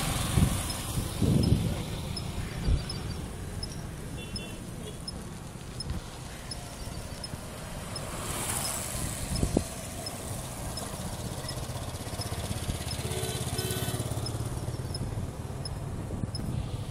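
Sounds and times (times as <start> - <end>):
motorcycle engine rumbling: 0.0 - 16.9
short beeps: 2.9 - 5.2.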